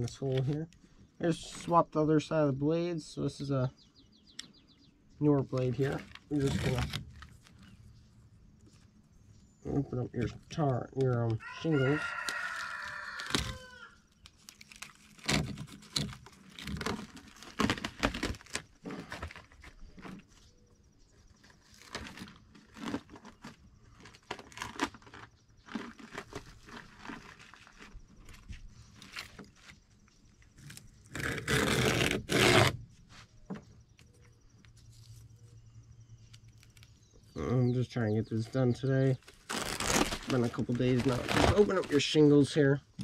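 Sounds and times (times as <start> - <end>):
shingles scraping and crinkling: 5.4 - 7.9, 10.2 - 20.6, 21.2 - 33.3, 38.3 - 42.6
rooster crowing: 11.4 - 14.0.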